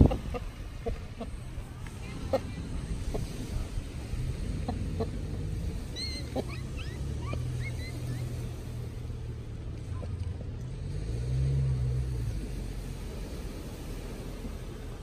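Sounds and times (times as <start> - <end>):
low engine rumble: 0.0 - 15.0
bird chirps: 5.9 - 8.3.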